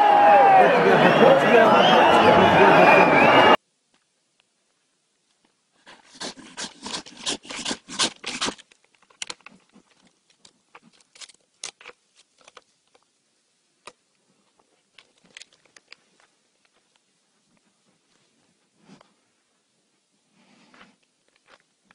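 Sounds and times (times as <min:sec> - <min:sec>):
sharp clicks and scratches: 0:05.9 - 0:13.1
bear claws scraping phone: 0:06.0 - 0:08.7.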